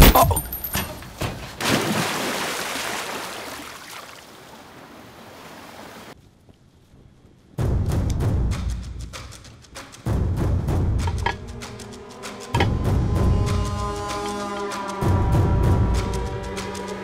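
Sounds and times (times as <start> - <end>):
wind: 0.0 - 17.0
sea waves: 1.5 - 6.2.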